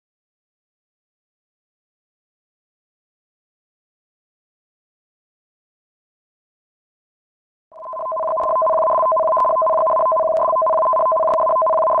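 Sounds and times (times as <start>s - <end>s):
two-tone electronic warning alarm: 7.8s - 12.0s.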